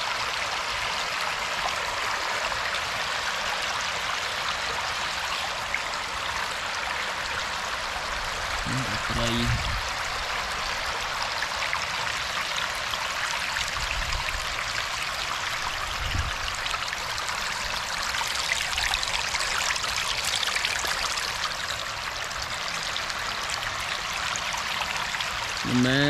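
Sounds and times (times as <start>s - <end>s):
water running: 25.5s - 26.0s.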